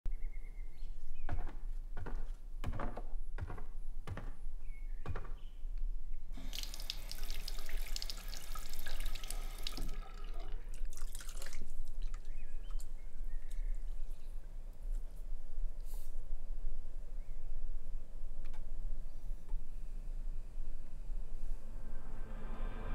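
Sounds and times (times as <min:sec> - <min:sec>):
tap running into basin: 0:06.4 - 0:11.4.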